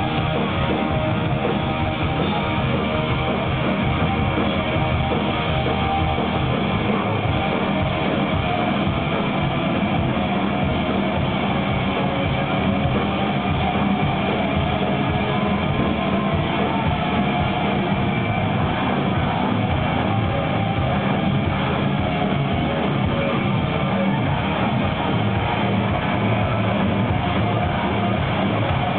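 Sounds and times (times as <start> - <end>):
rock band playing live: 0.0 - 28.9.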